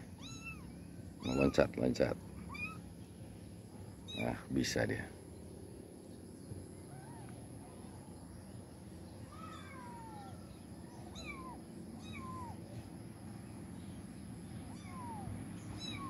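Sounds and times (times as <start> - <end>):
kittens mewing: 0.0 - 1.8, 2.4 - 2.9, 4.0 - 4.4, 6.8 - 7.7, 9.2 - 12.9, 14.6 - 16.0.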